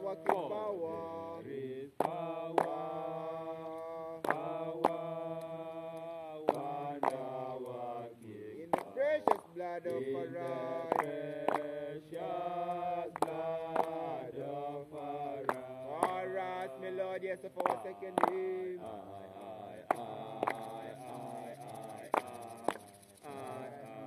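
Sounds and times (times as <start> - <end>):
men chanting: 0.0 - 24.0
sharp knocks or claps: 2.0 - 2.9, 3.6 - 5.0, 6.4 - 7.3, 8.7 - 9.6, 10.9 - 11.8, 13.1 - 14.1, 15.4 - 16.7, 17.6 - 18.5, 19.9 - 21.2, 21.9 - 23.1.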